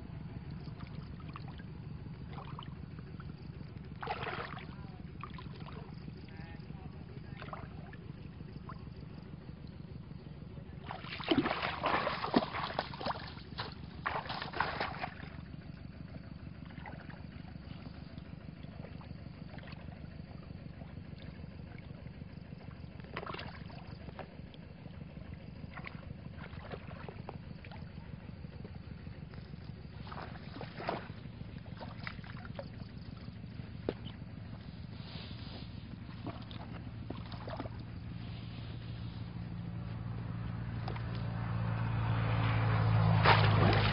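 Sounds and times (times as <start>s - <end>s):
water splashing: 4.0s - 5.9s, 10.8s - 15.4s, 29.9s - 39.7s, 40.8s - 43.9s.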